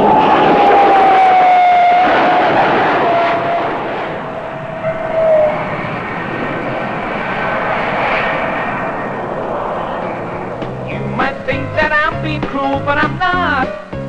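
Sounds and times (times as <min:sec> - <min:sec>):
jet engines passing low: 0:00.0 - 0:14.0.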